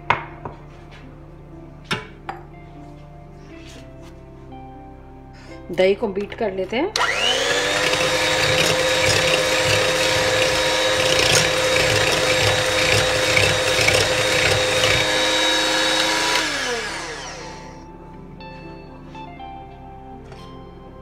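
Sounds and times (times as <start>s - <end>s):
electric hand mixer whining: 7.0s - 17.9s.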